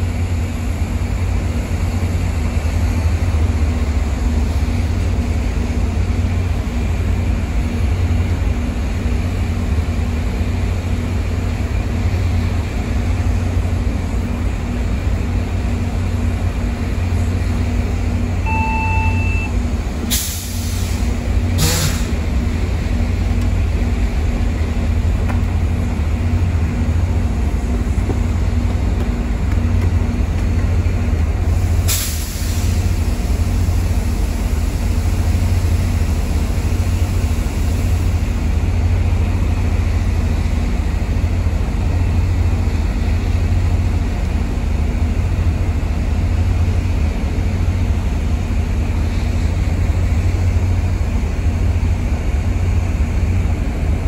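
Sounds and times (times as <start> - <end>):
diesel locomotives idling: 0.0 - 54.0
short electronic beep: 18.4 - 19.6
air hiss bursts: 20.1 - 22.2, 31.6 - 32.9.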